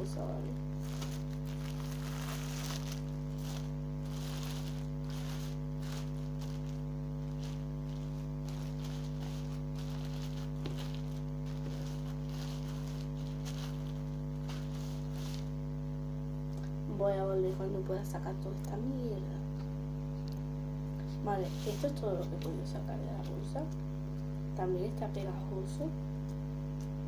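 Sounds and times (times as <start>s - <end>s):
low electrical hum: 0.0s - 27.0s
plastic bag crinkling: 0.4s - 15.8s.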